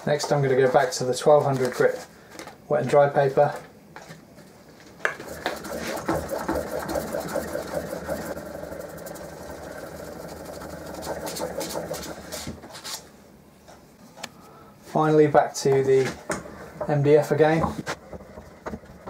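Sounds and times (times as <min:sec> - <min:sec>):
chisel scraping on sandpaper: 0:05.2 - 0:13.0.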